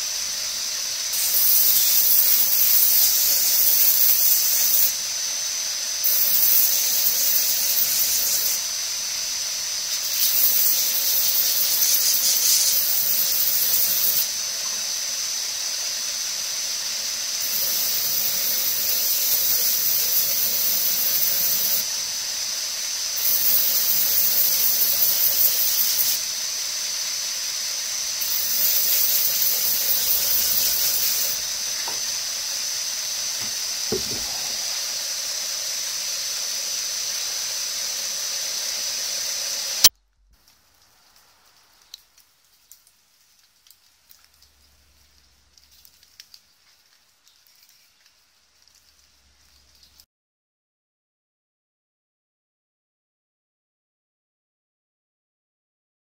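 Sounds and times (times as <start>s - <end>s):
hissing grind against belt: 1.1s - 4.9s, 9.9s - 14.4s, 17.4s - 21.9s, 23.2s - 26.2s, 28.2s - 35.9s
belt grinder whine: 1.1s - 9.1s, 9.7s - 15.3s, 16.4s - 22.0s, 23.1s - 26.4s, 27.9s - 39.9s.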